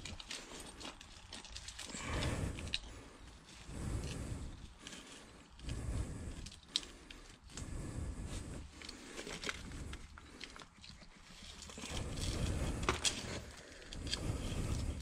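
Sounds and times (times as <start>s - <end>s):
concrete scraping over rubble: 8.0s - 15.0s.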